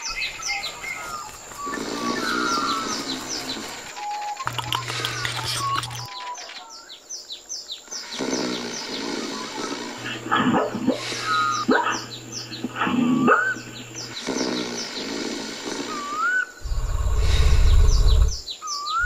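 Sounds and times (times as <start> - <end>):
birds chirping: 0.0 - 19.0
sharp bird calls: 0.0 - 19.0
low hum: 16.6 - 18.4.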